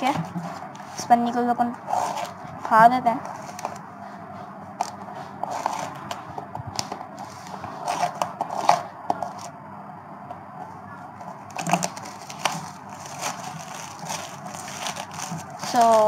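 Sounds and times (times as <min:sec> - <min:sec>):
plastic wrap crinkling and tearing: 0:11.4 - 0:16.0.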